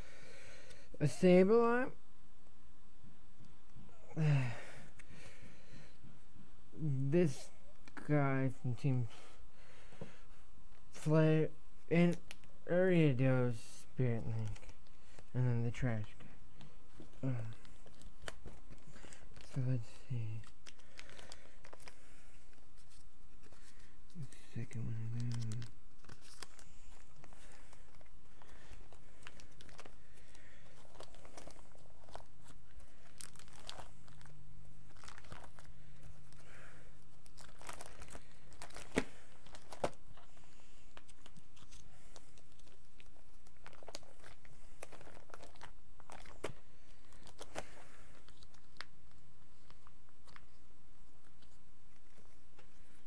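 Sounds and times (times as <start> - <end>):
cards and packaging rustling: 11.9 - 53.0.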